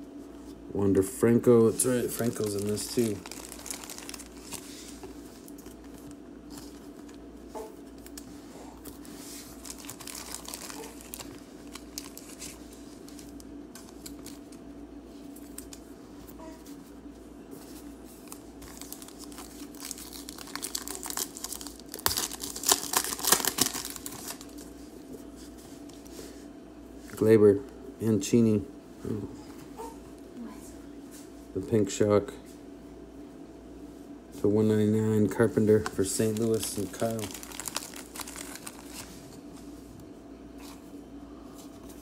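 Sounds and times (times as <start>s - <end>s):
trading cards rustling: 1.7s - 7.2s, 7.9s - 14.6s, 18.2s - 24.7s, 35.7s - 39.2s
plastic wrapper crinkling: 1.9s - 7.2s, 8.0s - 14.6s, 18.2s - 24.7s, 35.8s - 39.3s.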